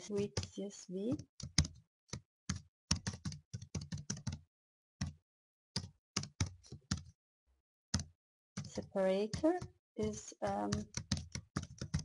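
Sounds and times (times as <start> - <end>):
computer keyboard typing: 0.0 - 4.4, 5.8 - 7.1, 7.9 - 12.0.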